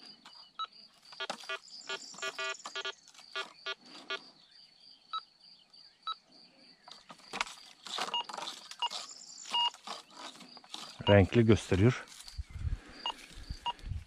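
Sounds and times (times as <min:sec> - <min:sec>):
metal detector beeping: 0:00.3 - 0:04.3, 0:07.9 - 0:11.7
brush rustling against coil: 0:07.1 - 0:12.4.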